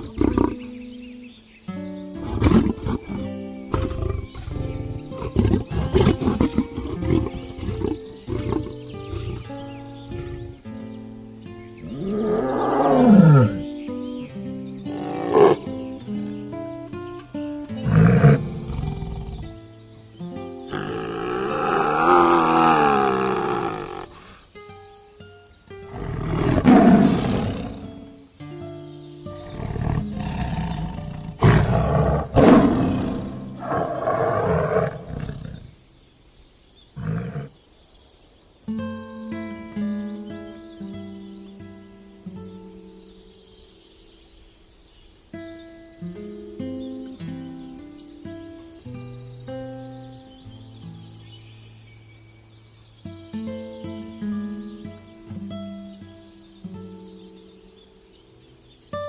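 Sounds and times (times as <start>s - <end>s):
tiger roaring and growling: 0.0s - 0.7s, 2.2s - 9.6s, 11.8s - 13.6s, 17.8s - 19.5s, 20.7s - 24.3s, 25.9s - 28.1s, 29.4s - 35.8s, 37.0s - 37.6s
background music: 0.0s - 23.9s.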